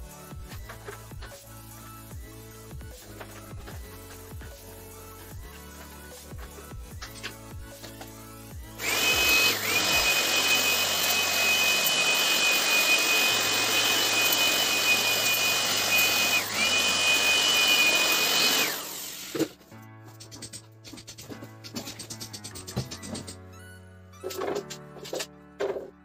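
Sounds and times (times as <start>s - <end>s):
electric air blower whining: 8.8s - 19.4s.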